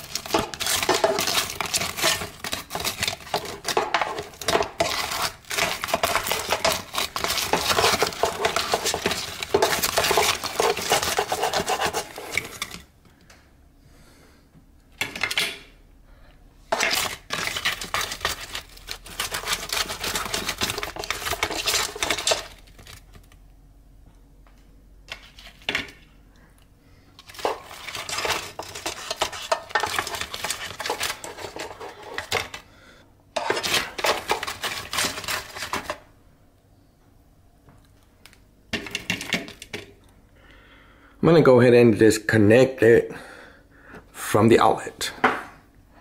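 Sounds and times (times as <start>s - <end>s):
spoon scraping metal basket: 0.0s - 12.9s, 16.7s - 23.0s, 27.2s - 32.6s, 33.4s - 36.0s.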